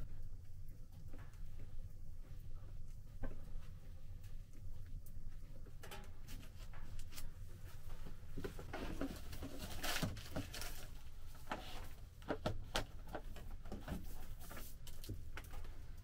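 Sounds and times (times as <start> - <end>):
rustling scrape: 6.3 - 12.0
plastic pipe knocking and scraping: 8.4 - 15.6.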